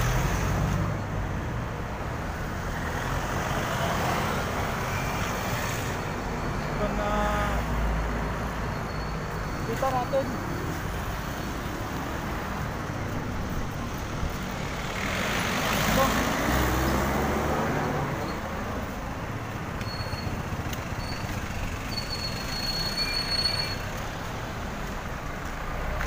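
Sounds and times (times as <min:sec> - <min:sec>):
road traffic: 0:00.0 - 0:26.0
faint high squeal: 0:08.6 - 0:09.8, 0:19.8 - 0:23.9
vehicle passing close: 0:14.5 - 0:18.2.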